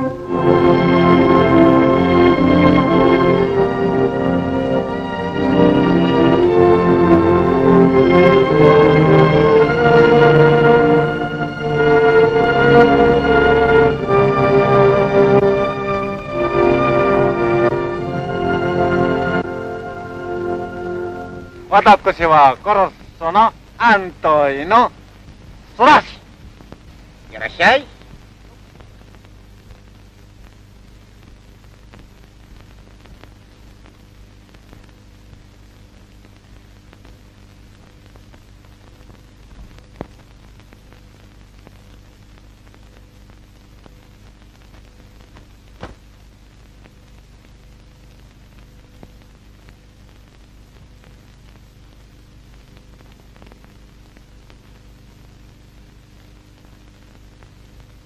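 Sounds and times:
film soundtrack hiss and hum: 0.0 - 58.0
crackle clicks: 21.5 - 58.0.

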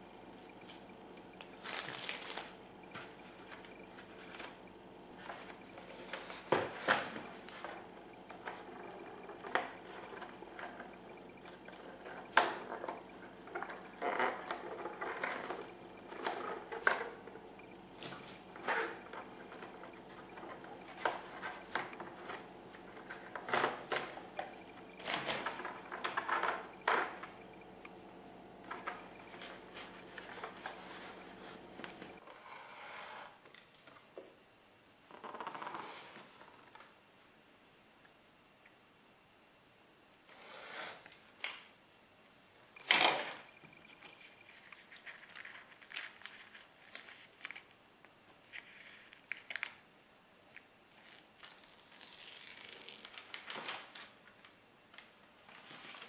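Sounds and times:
steady low hum: 0.0 - 35.2
hands handling foam and tape: 50.5 - 54.1.

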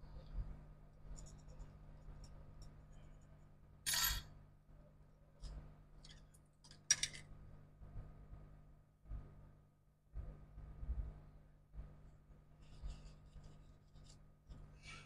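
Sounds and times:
small tools clicking and scratching: 6.0 - 7.3.

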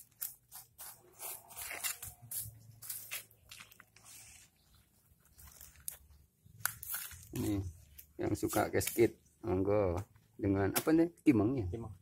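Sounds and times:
fingers scraping gritty soil: 0.2 - 4.6.

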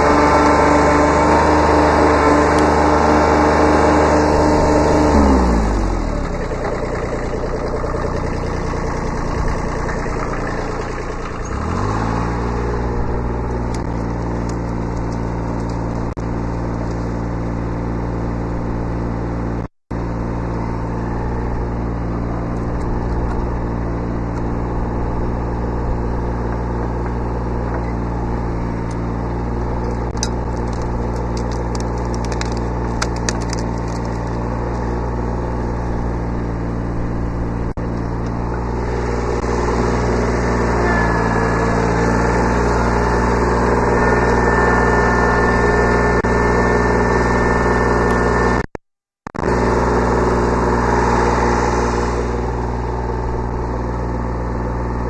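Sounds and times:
diesel tractor engine running: 0.0 - 55.0.

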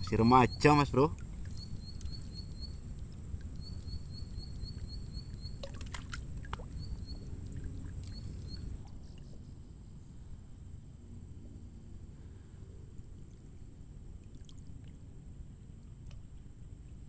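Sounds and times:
lake water sloshing: 0.0 - 3.9, 4.8 - 9.0
small bird chirping: 0.0 - 5.8, 6.6 - 7.4, 8.0 - 9.8.

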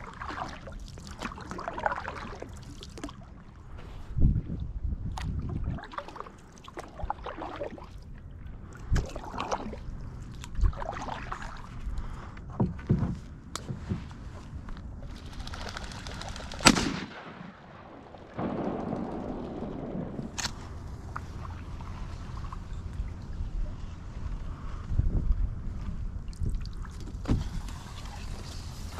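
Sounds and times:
paddle strokes in water: 0.0 - 15.2, 20.6 - 28.9
paddle knocking against hull: 12.5 - 14.1
sharp crack: 16.0 - 21.5.

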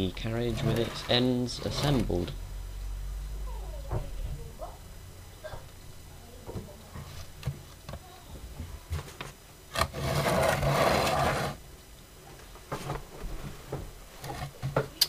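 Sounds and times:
scraping rustle: 0.4 - 2.3, 9.0 - 11.6.

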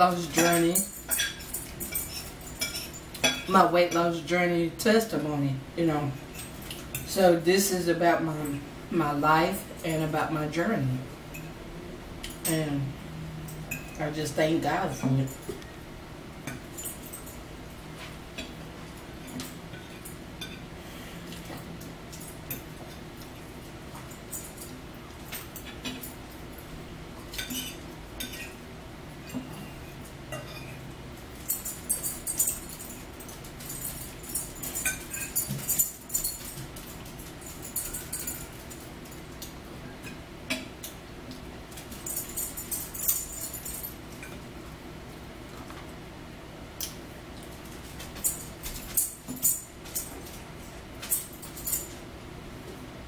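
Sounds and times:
forks clinking on plates: 0.2 - 4.0, 13.5 - 14.0, 16.4 - 17.4, 19.2 - 20.7, 21.3 - 23.4, 24.0 - 26.2, 27.2 - 28.6, 29.2 - 41.0, 41.7 - 44.4, 46.8 - 52.0.

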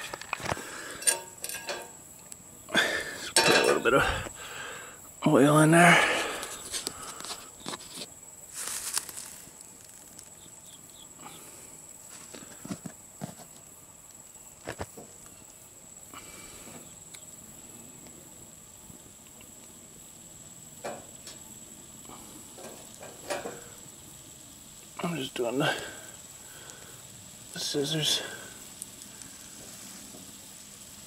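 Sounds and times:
faint sizzle of frying: 0.0 - 31.0
clicks and knocks of a pan: 1.0 - 2.0, 20.8 - 21.4, 22.6 - 23.6.

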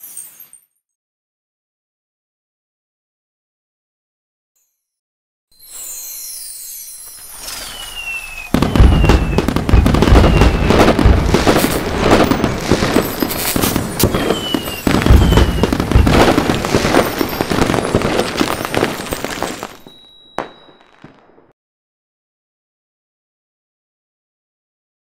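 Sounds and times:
firework crackling and popping: 5.8 - 21.5
whistling rockets: 7.0 - 21.6
firework booms: 7.4 - 21.5.

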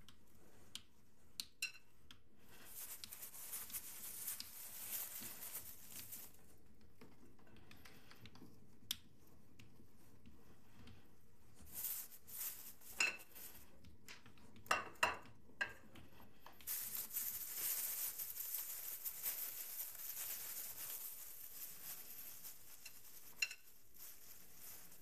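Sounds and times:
plastic bag crinkling: 2.5 - 6.5, 11.7 - 13.6, 16.7 - 25.0.

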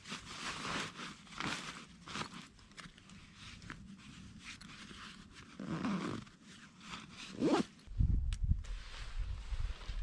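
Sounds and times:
fabric rustling: 0.0 - 7.9
backpack zipper being pulled: 5.6 - 6.3, 7.3 - 7.7.

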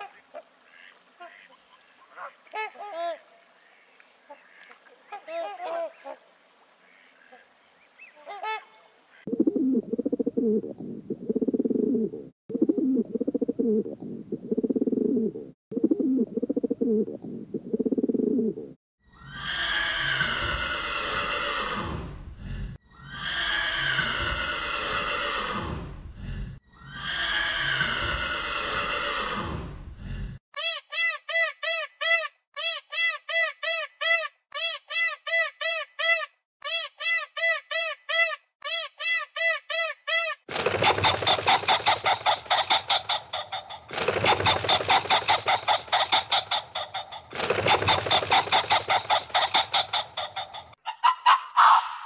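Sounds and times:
horse whinnying: 19.1 - 22.2, 22.9 - 26.0, 26.7 - 29.8
rapid harsh animal calls: 40.5 - 52.0.

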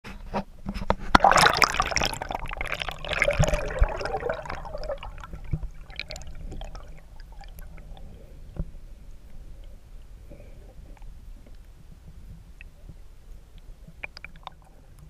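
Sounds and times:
underwater crackles and clicks: 0.1 - 15.0
water splashing and bubbling: 1.1 - 8.3, 14.0 - 15.0
low underwater rumble: 1.2 - 15.0.

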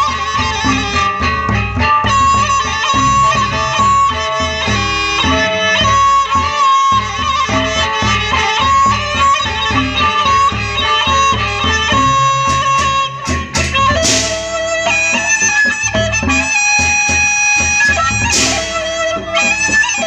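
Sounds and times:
bamboo flute melody: 0.0 - 20.0
large drums beaten with sticks: 6.9 - 19.6
hand cymbals clashing: 12.0 - 15.4, 16.6 - 19.1.

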